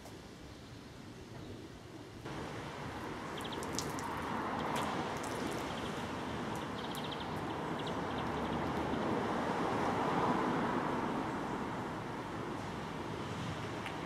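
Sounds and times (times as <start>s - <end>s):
outdoor background rush: 0.0s - 14.0s
small birds chirping: 3.2s - 9.2s.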